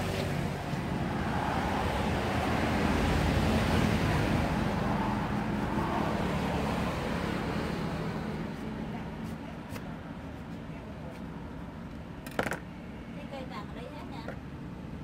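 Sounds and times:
traffic rumble: 0:00.0 - 0:15.0.

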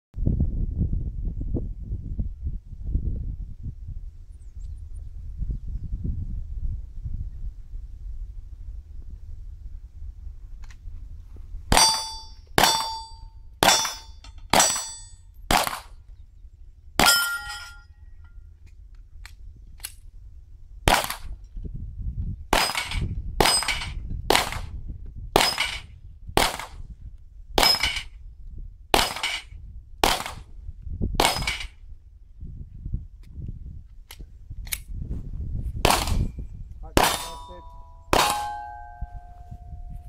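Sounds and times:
steel targets ringing: 0:11.7 - 0:15.2, 0:17.0 - 0:17.9, 0:27.6 - 0:28.1, 0:37.0 - 0:40.0
pistol shots: 0:13.6 - 0:15.9, 0:20.9 - 0:21.3, 0:22.6 - 0:24.7, 0:25.4 - 0:25.8, 0:26.4 - 0:26.8, 0:29.0 - 0:29.4, 0:30.0 - 0:30.4, 0:31.2 - 0:31.7, 0:35.9 - 0:36.3, 0:37.0 - 0:39.0.

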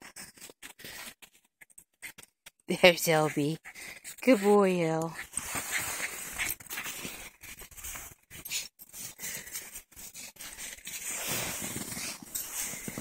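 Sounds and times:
footsteps crunching in snow: 0:10.1 - 0:13.0.

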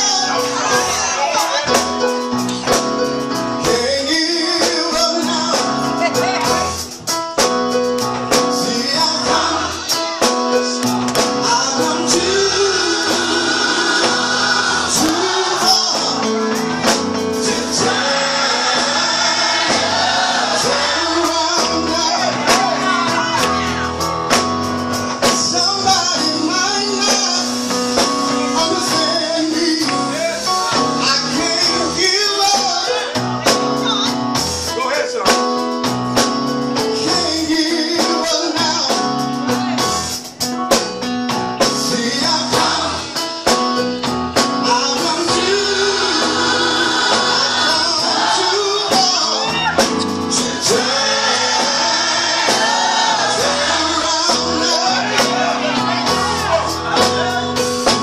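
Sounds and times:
man singing into microphone: 0:00.0 - 0:01.2, 0:03.6 - 0:06.4, 0:08.3 - 0:19.4, 0:20.6 - 0:23.7, 0:25.2 - 0:33.3, 0:36.8 - 0:39.7, 0:41.6 - 0:43.5, 0:44.4 - 0:58.0
group singing along: 0:00.0 - 0:01.9, 0:08.2 - 0:34.0, 0:41.6 - 0:43.8, 0:44.6 - 0:58.0
electric bass: 0:00.0 - 0:34.7, 0:35.3 - 0:58.0
drums: 0:00.0 - 0:58.0.

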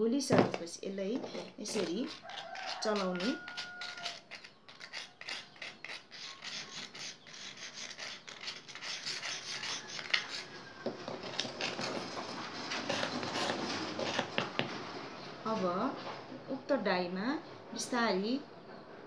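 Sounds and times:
small tool scraping inside shell: 0:00.5 - 0:14.8.

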